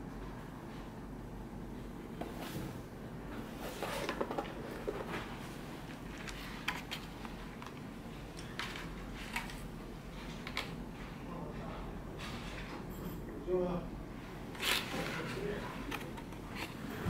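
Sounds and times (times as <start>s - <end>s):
steady low hum: 0.0s - 17.0s
plastic trays and box rustling: 3.6s - 7.8s.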